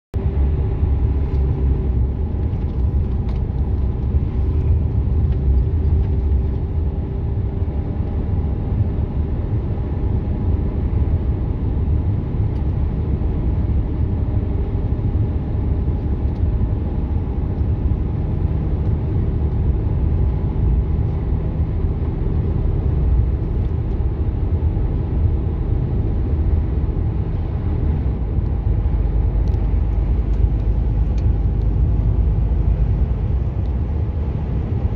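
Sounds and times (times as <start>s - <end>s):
truck engine and tyre rumble: 0.1s - 34.9s
faint steady engine tones: 0.2s - 34.9s.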